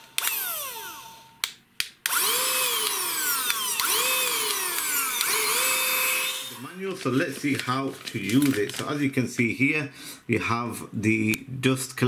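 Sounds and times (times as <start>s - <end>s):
car vacuum cleaner whirring: 0.0s - 1.4s, 2.1s - 6.8s
vacuum cleaner clicks: 1.4s - 5.8s.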